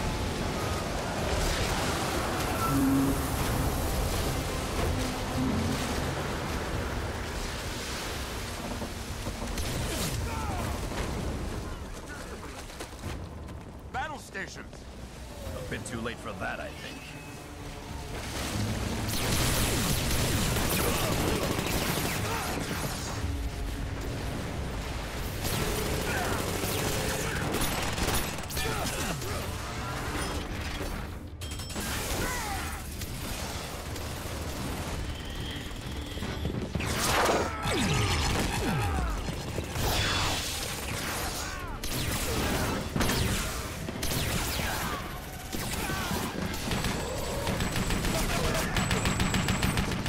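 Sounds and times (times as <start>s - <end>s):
dramatic orchestral score: 0.0s - 13.3s, 13.9s - 50.0s
gunfire: 33.1s - 50.0s.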